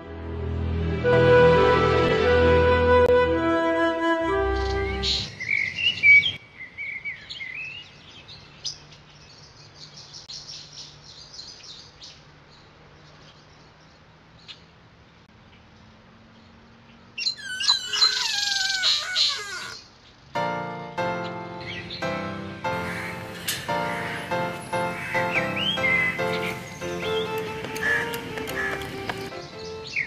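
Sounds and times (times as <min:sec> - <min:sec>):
birds chirping and twittering: 0:04.5 - 0:20.4, 0:21.1 - 0:30.0
bird calls falling in pitch: 0:17.3 - 0:19.8.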